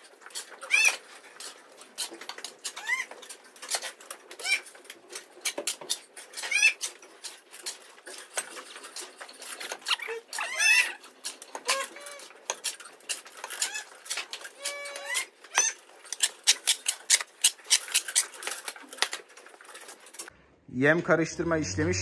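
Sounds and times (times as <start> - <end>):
shovel scraping concrete floor: 11.7 - 19.2.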